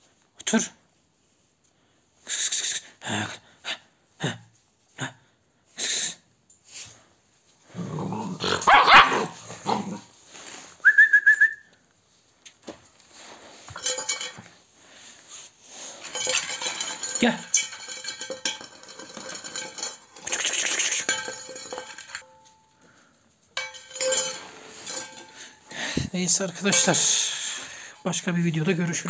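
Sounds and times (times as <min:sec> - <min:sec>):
dog growling bark: 0:07.7 - 0:10.1.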